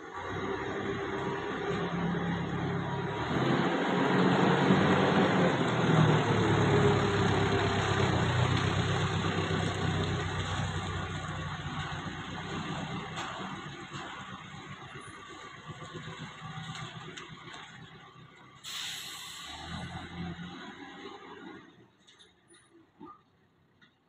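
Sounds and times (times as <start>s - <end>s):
forklift engine running: 0.0s - 18.7s.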